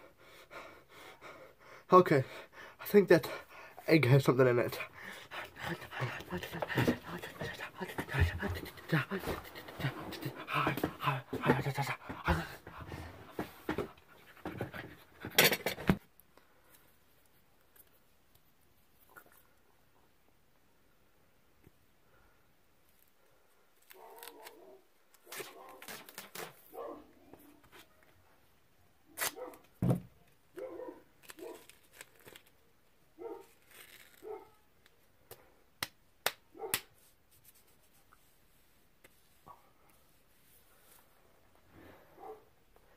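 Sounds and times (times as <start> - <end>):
man panting loudly: 0.0 - 15.1
duct tape ripping: 23.8 - 24.6, 25.2 - 26.8, 29.2 - 29.6, 31.2 - 32.6, 33.4 - 34.3.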